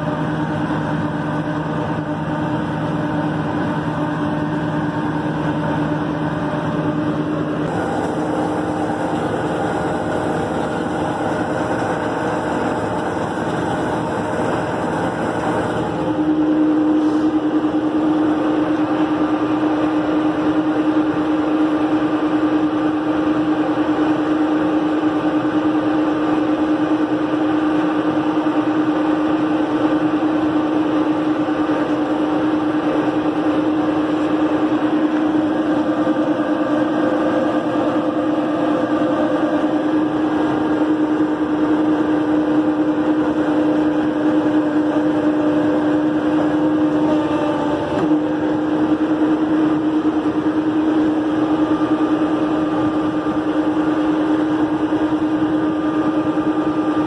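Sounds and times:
tractor engine running under load: 0:00.0 - 0:57.0.

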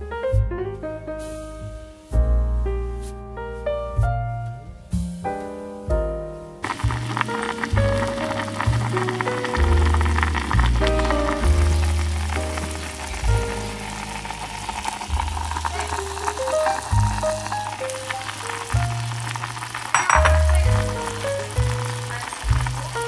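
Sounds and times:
background music: 0:00.0 - 0:23.0
soup boiling in a saucepan: 0:06.6 - 0:23.0.

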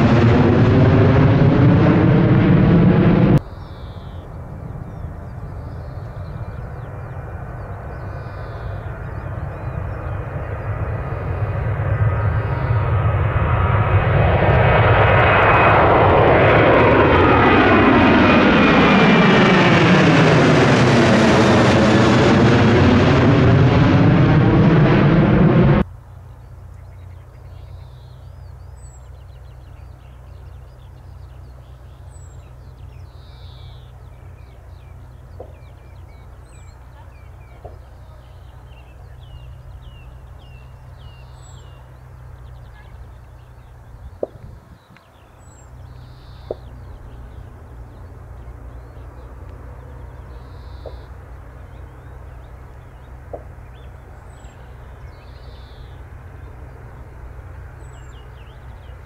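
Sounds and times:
low rumble: 0:00.0 - 0:25.9
small birds chirping: 0:03.4 - 0:13.1, 0:25.9 - 0:59.0.

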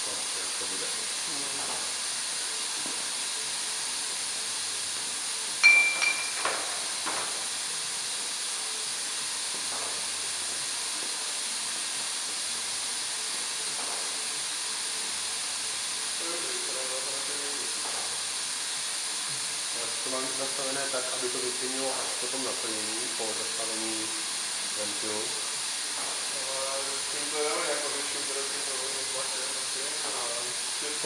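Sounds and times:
bottle filler hissing: 0:00.0 - 0:31.0
glass bottles clinking: 0:05.6 - 0:06.6.

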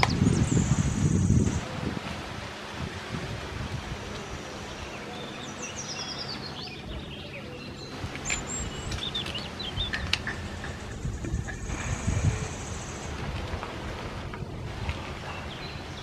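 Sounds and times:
outdoor background rumble: 0:00.0 - 0:16.0
small birds chirping: 0:04.1 - 0:13.2, 0:15.2 - 0:16.0.

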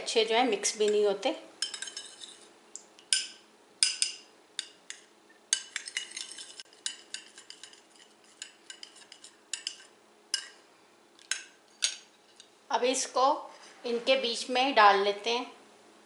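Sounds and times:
spoon clinking against ceramic bowl: 0:01.6 - 0:02.3, 0:03.0 - 0:10.6.

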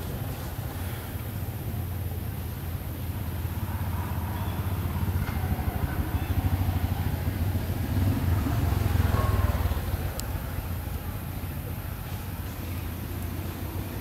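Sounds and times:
vehicle engine rumbling past: 0:00.0 - 0:14.0.

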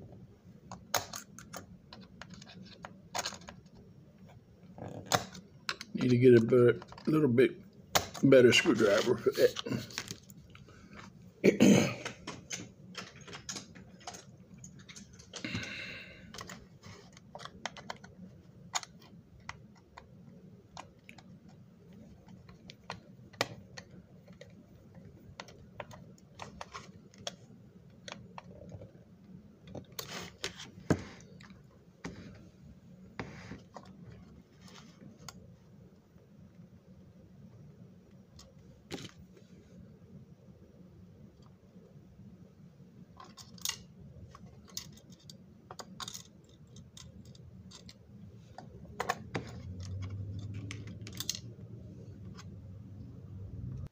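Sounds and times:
plastic parts clicking and knocking: 0:00.7 - 0:03.9, 0:04.8 - 0:07.2, 0:07.9 - 0:10.3, 0:12.0 - 0:29.0, 0:43.2 - 0:51.6.

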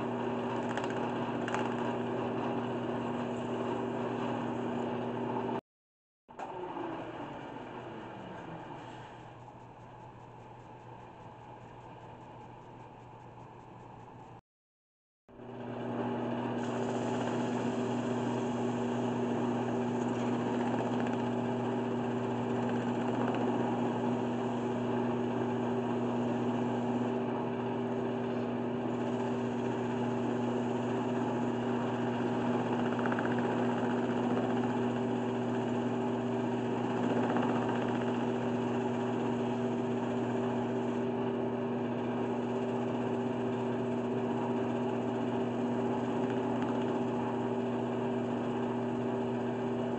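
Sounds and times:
wood lathe motor hum: 0:15.6 - 0:49.9.

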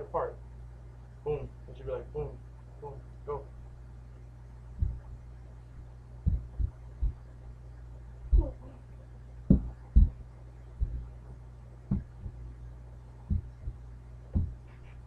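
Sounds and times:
low electrical hum: 0:00.0 - 0:15.0
feet stomping on carpeted floor: 0:04.8 - 0:05.2, 0:06.2 - 0:07.2, 0:09.5 - 0:10.2, 0:10.8 - 0:11.1, 0:11.9 - 0:12.4, 0:13.3 - 0:15.0.

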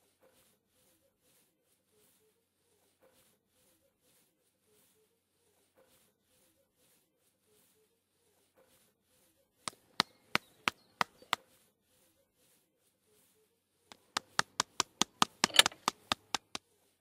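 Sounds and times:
sharp knocks: 0:13.9 - 0:16.6.

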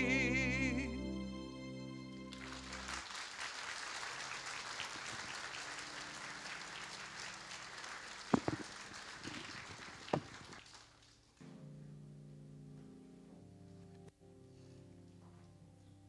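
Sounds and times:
held musical chord: 0:00.0 - 0:03.0, 0:11.4 - 0:15.8
congregation applauding: 0:01.8 - 0:11.4.

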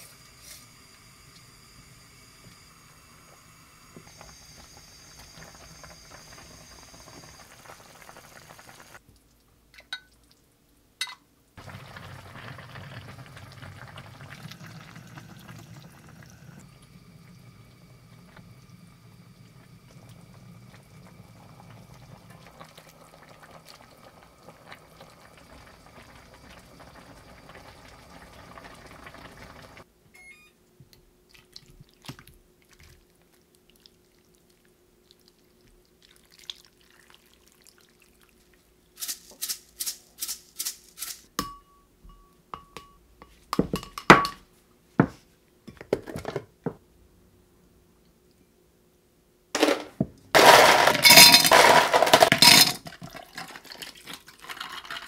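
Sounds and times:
stew bubbling at a simmer: 0:00.1 - 0:10.5, 0:11.6 - 0:29.9, 0:31.2 - 0:38.8.

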